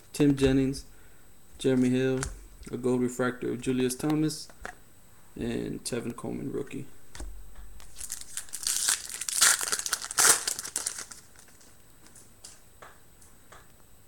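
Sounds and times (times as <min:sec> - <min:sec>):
foil wrapper tearing and crinkling: 0:07.8 - 0:11.7.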